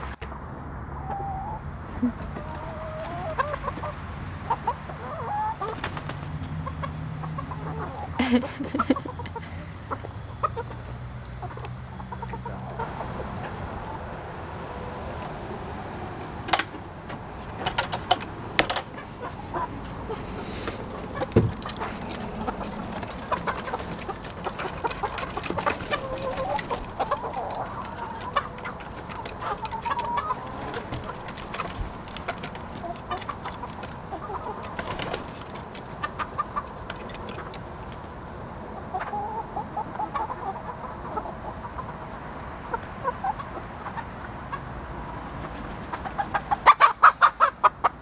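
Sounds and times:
chickens clucking: 0:00.9 - 0:48.0.

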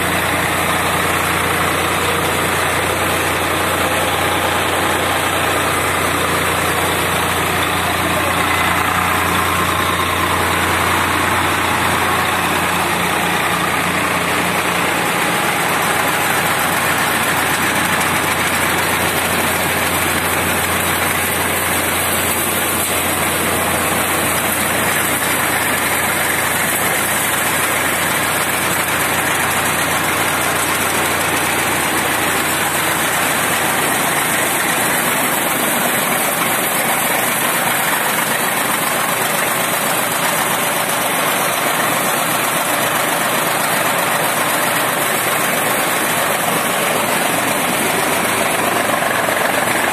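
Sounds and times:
tractor engine running: 0:00.0 - 0:49.9.

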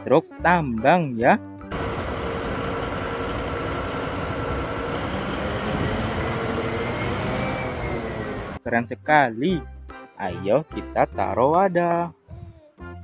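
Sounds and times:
diesel engine running: 0:01.7 - 0:08.6.

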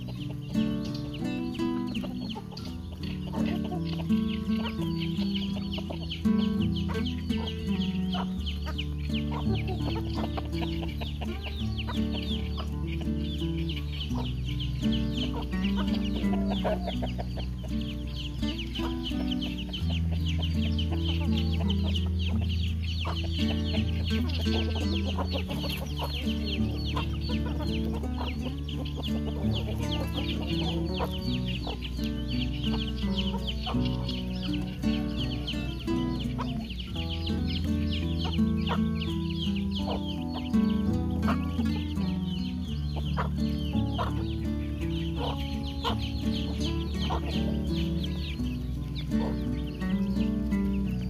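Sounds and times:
background music with bass notes: 0:00.0 - 0:51.0
chickens clucking: 0:00.0 - 0:51.0.

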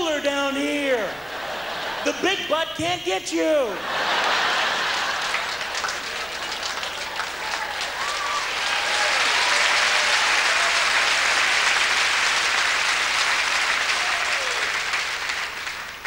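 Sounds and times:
audience applauding: 0:03.9 - 0:16.0.

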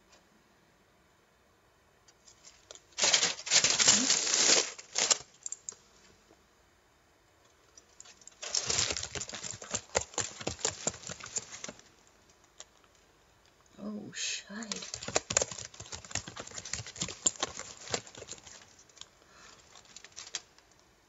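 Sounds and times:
aluminium foil crinkling: 0:02.3 - 0:05.8, 0:07.9 - 0:12.0, 0:14.6 - 0:20.8.

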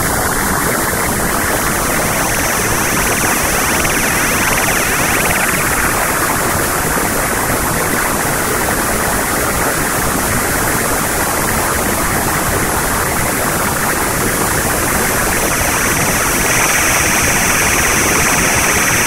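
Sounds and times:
static hiss: 0:00.4 - 0:07.3, 0:13.4 - 0:19.0.

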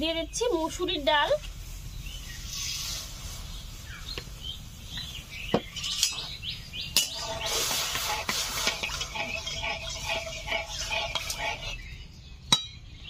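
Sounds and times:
small birds chirping: 0:00.0 - 0:13.0
cooking pot and utensils clinking: 0:05.6 - 0:11.8
water washing lentils: 0:07.0 - 0:11.8.

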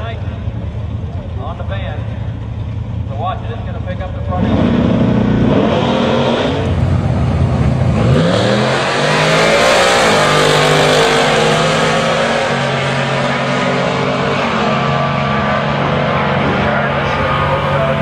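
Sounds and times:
vehicles accelerating at full throttle: 0:00.0 - 0:18.0.

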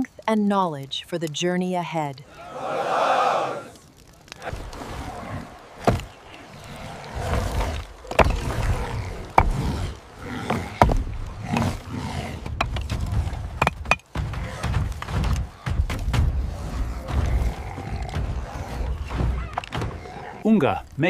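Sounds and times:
animal-like vocal sounds: 0:02.2 - 0:13.6, 0:14.3 - 0:20.9
stone and wood knocks: 0:13.6 - 0:16.3.

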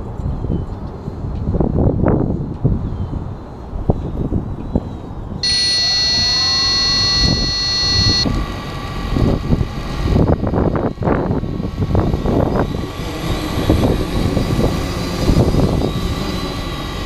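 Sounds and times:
wind buffeting microphone: 0:00.0 - 0:05.6, 0:08.2 - 0:17.0
high-pitched electronic tone: 0:05.4 - 0:10.0
drone motors whining: 0:05.4 - 0:17.0.

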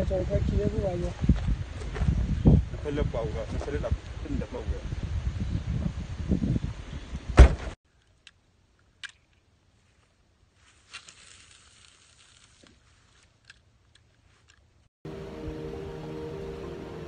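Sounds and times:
wind buffeting microphone: 0:00.0 - 0:07.8
car hatch slammed shut: 0:07.4 - 0:07.8.

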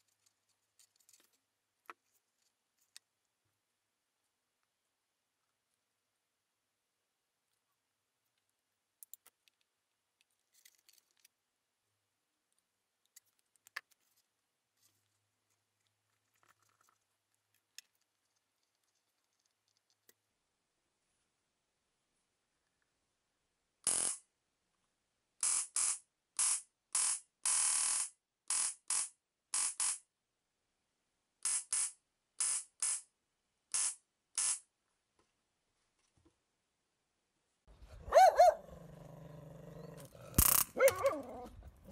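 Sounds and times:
faint clicks of plastic parts: 0:00.0 - 0:03.6, 0:07.4 - 0:11.5, 0:12.5 - 0:20.4
high-voltage sparks crackling: 0:23.9 - 0:24.2, 0:31.5 - 0:33.0, 0:33.7 - 0:34.6.

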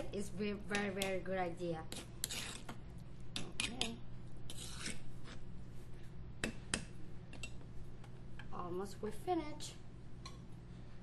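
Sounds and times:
steady low hum: 0:00.0 - 0:11.0
spoon scraping in a bowl: 0:01.9 - 0:05.5.

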